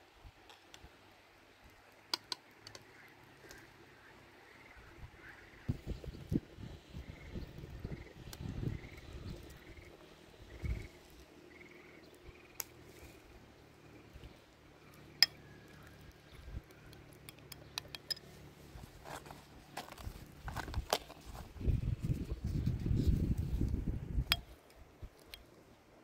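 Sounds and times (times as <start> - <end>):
light clicks and clinks: 16.8 - 18.5.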